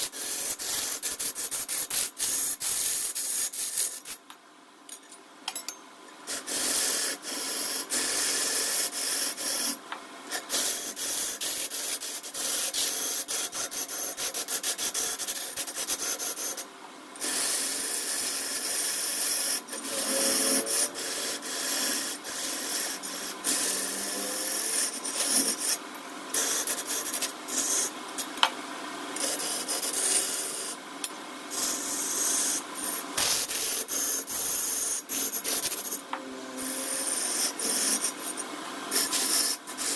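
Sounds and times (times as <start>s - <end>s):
lathe tool scraping wood: 17.2s - 27.9s, 31.5s - 39.9s.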